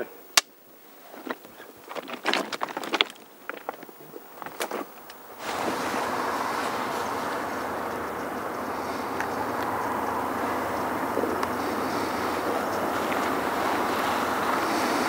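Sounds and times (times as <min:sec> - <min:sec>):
small crackles and rustles: 0:00.7 - 0:09.7
steady rushing noise: 0:01.1 - 0:15.0.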